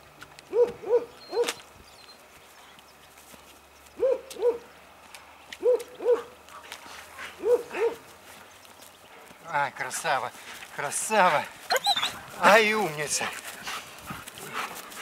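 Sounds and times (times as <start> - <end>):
dog double barks: 5.6 - 6.4, 7.4 - 8.0.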